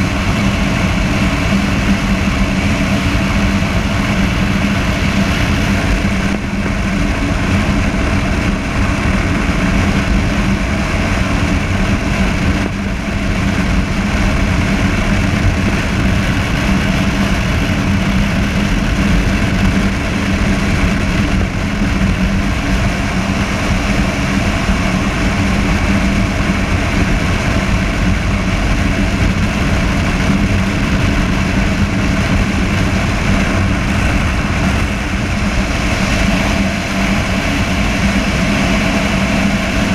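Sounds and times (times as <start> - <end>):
motorcycle engine cruising: 0.0 - 39.9
wind and road noise: 0.0 - 39.9.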